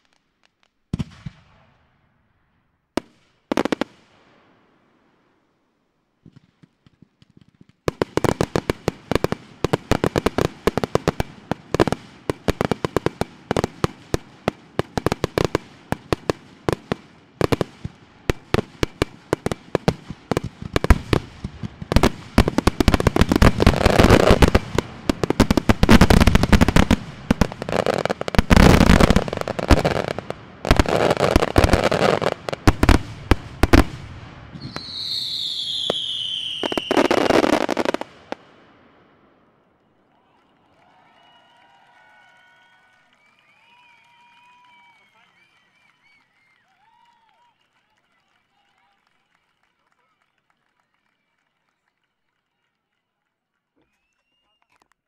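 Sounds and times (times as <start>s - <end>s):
fireworks bangs and crackles: 0.0s - 2.2s, 3.0s - 4.8s, 6.2s - 39.4s
falling firework whistle: 34.5s - 37.6s, 41.0s - 47.4s, 53.8s - 54.7s.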